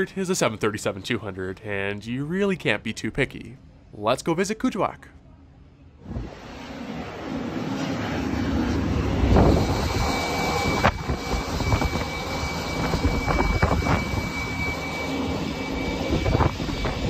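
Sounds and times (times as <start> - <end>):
jet aircraft whine and rush: 6.0 - 17.0.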